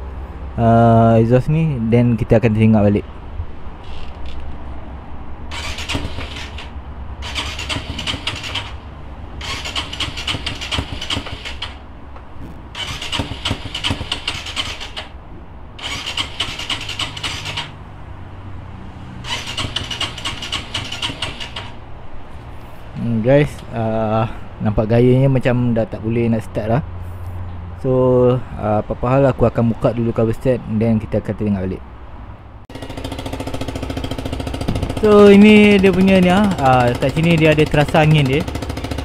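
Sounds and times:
engine cranking with electric starter: 3.8s - 4.4s, 5.5s - 11.8s, 12.7s - 15.2s, 15.8s - 17.8s, 19.2s - 21.8s, 32.7s - 39.0s.

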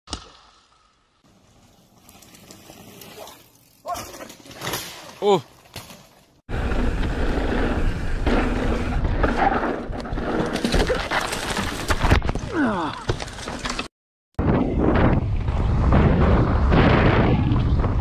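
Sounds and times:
mountain bike rattling on trail: 1.3s - 12.2s.

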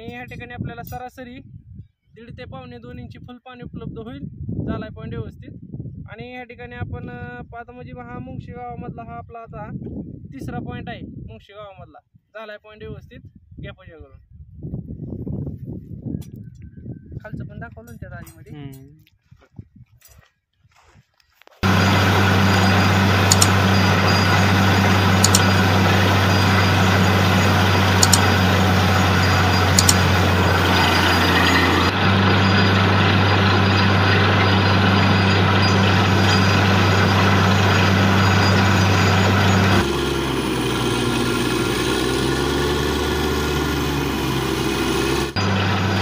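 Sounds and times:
drilling rig engine hum: 21.6s - 46.0s
sharp clicks: 21.7s - 31.9s.

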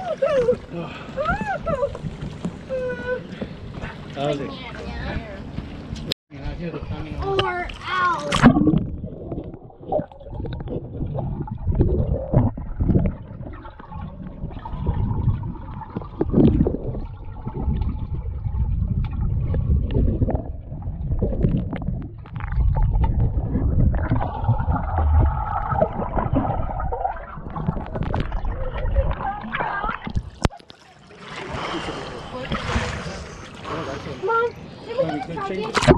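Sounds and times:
muffled underwater water gurgling: 8.4s - 30.6s.

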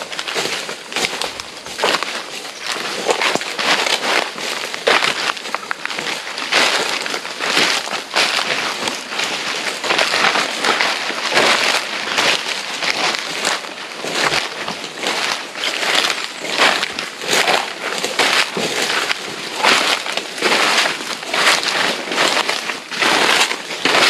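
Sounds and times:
footsteps crunching dry leaves: 0.0s - 24.0s.

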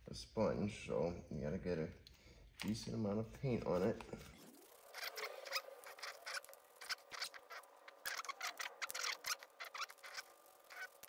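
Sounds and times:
foam paint roller squeaking: 3.4s - 11.0s
paint marker scratching: 4.9s - 11.0s.

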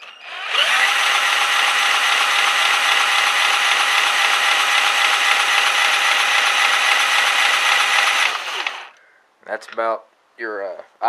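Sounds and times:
electric drill running: 0.0s - 9.0s
engine piston and valves spinning: 0.0s - 9.0s.

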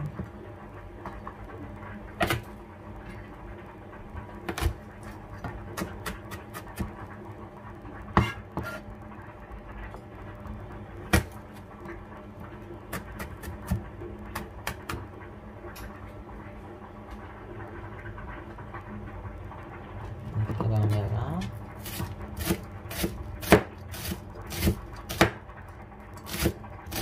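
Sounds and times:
knife chopping on cutting board: 21.9s - 25.4s.

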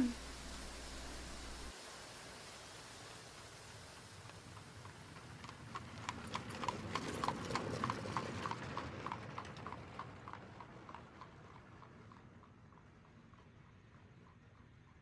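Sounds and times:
soft hiss: 0.0s - 5.5s
horse hooves clip-clopping: 4.1s - 15.0s.

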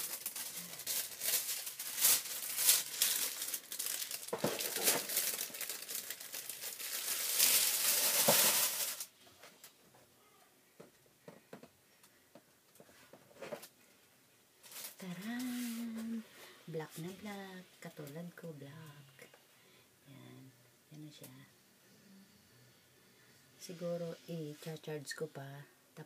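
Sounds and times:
plastic bag crinkling: 0.0s - 9.1s, 14.6s - 16.2s.

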